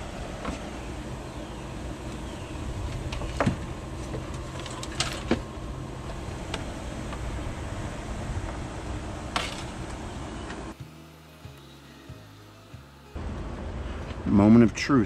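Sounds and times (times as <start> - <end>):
steady low rumble: 0.0 - 10.8.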